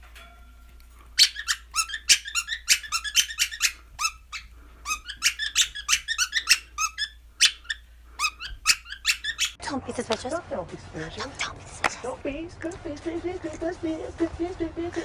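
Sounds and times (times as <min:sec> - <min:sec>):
budgerigar squeaking: 0:01.2 - 0:09.6.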